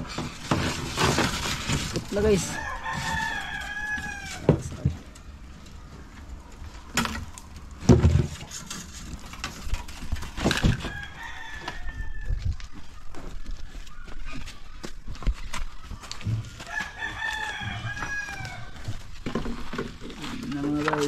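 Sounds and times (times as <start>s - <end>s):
rooster crowing: 2.4s - 4.6s, 10.7s - 12.6s, 16.5s - 19.0s
sharp knocks and thumps: 6.9s - 10.9s.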